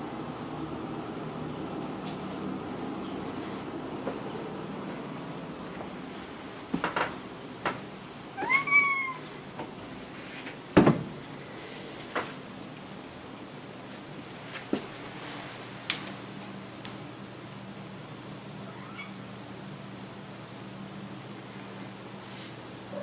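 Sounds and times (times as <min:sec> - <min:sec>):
cat meowing: 0:08.4 - 0:09.4.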